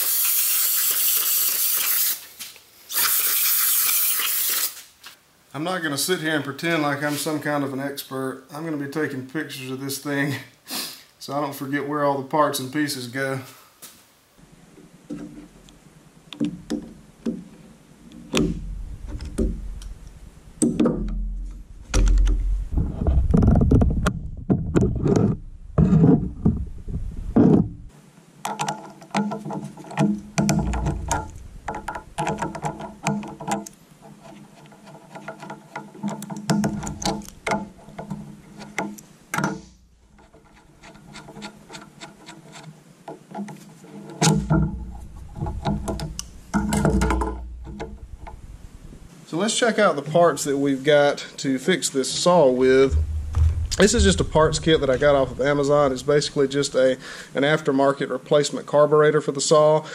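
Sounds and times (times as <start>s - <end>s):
steady hum: 30.2s - 33.0s, 44.4s - 49.1s, 52.6s - 57.4s.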